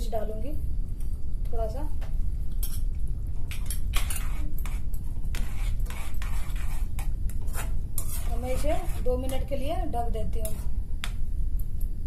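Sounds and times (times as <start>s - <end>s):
steel spoon scraping metal pan: 3.9s - 9.4s.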